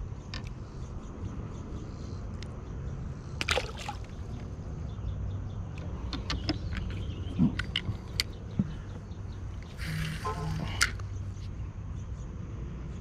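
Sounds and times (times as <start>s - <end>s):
fish splashing into water: 3.4s - 4.3s.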